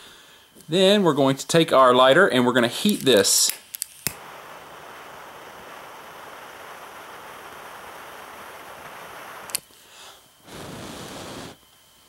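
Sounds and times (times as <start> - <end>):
torch lighter flame hissing: 2.8 - 11.8
lighter click: 3.0 - 4.4, 9.3 - 9.7.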